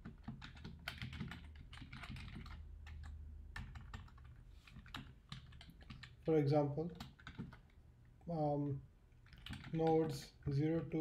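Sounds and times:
computer keyboard key clicks: 0:00.0 - 0:06.2, 0:09.3 - 0:09.9.

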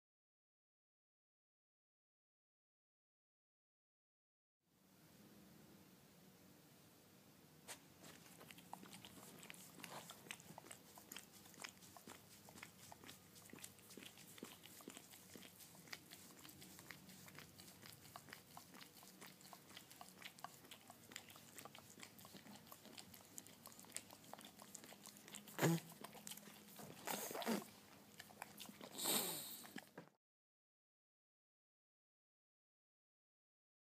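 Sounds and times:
dog licking wet clicks and laps: 0:07.7 - 0:30.0.

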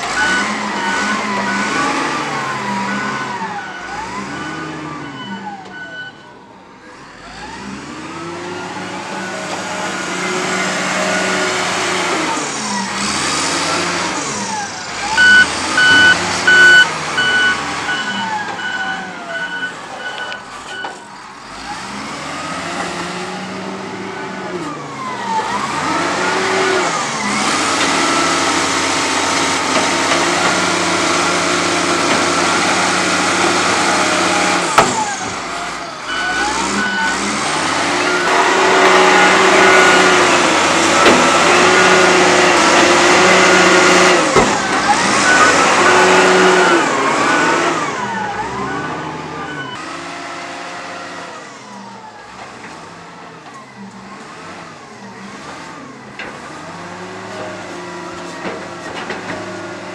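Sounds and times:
diesel engine revving: 0:00.0 - 0:59.9
short high beeps: 0:15.2 - 0:20.9.

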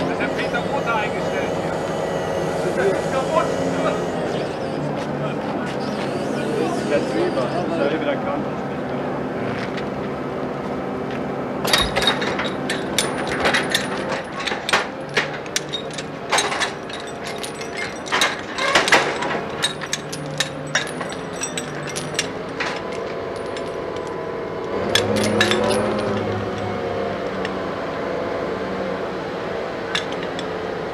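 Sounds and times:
diesel crane engine hum: 0:00.0 - 0:30.9
steel chains clanking: 0:11.6 - 0:24.2, 0:24.8 - 0:26.6, 0:29.9 - 0:30.5.

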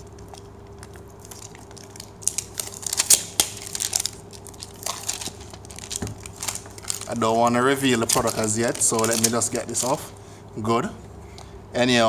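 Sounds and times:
plastic wrap crinkling: 0:00.0 - 0:10.1.

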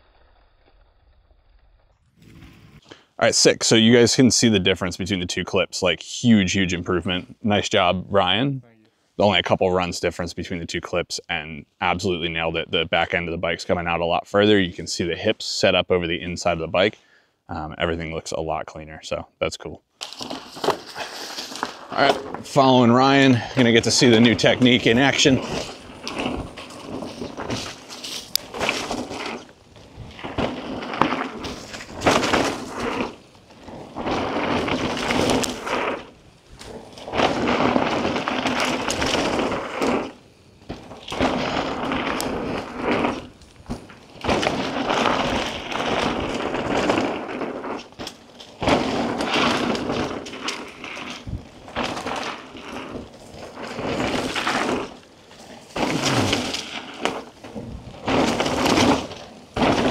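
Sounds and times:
bike rattling: 0:01.7 - 0:04.8, 0:20.0 - 0:59.9
tyres rolling over dirt: 0:20.0 - 0:59.9.

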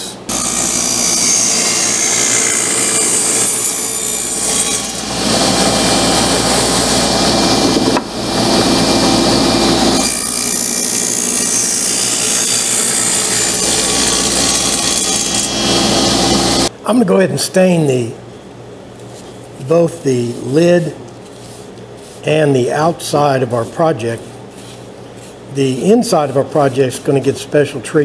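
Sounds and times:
table saw cutting wood: 0:00.3 - 0:16.7.

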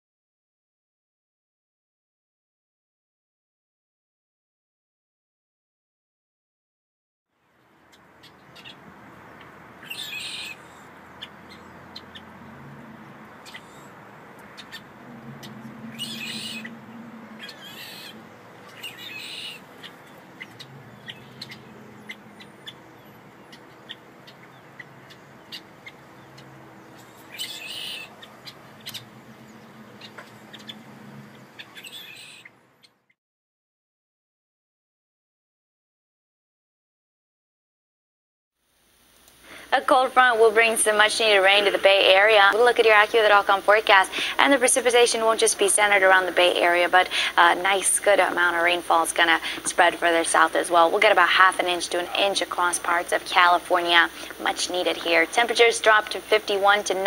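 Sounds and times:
steady outdoor hiss: 0:07.3 - 0:33.1, 0:38.6 - 0:57.0
short bird calls: 0:09.4 - 0:12.4, 0:13.1 - 0:33.2.

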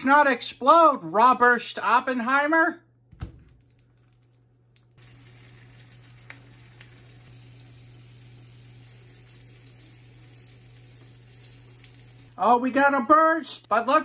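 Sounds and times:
sausages sizzling in a pan: 0:05.0 - 0:14.0.

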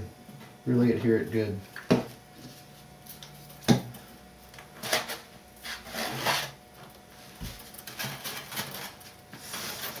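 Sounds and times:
foam rubbing scrapes: 0:04.8 - 0:06.6, 0:08.0 - 0:10.0.

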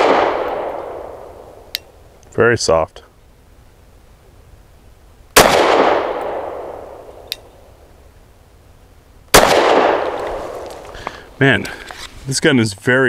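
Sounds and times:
pistol shots echoing: 0:00.0 - 0:01.7, 0:05.4 - 0:07.4, 0:09.3 - 0:10.8.

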